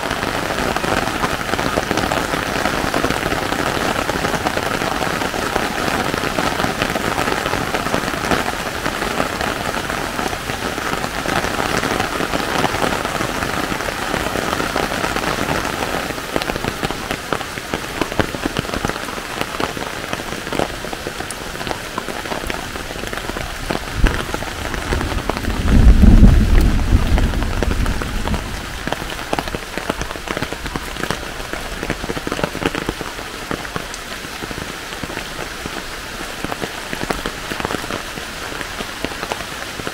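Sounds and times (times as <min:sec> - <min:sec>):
raindrops ticking: 0:00.0 - 0:39.9
steady rain falling: 0:00.0 - 0:39.9
loud low rumble: 0:24.0 - 0:29.2.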